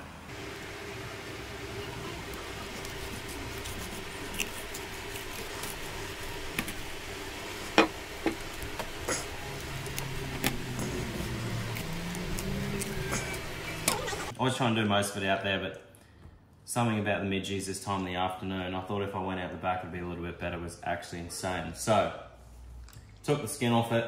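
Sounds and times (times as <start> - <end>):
low hum: 0.3 - 14.4
knife scraping fish: 2.7 - 6.8.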